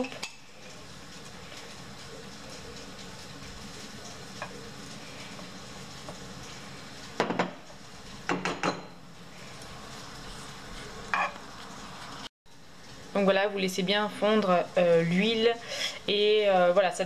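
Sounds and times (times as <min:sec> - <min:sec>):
spoon scraping a frying pan: 0:10.8 - 0:12.2.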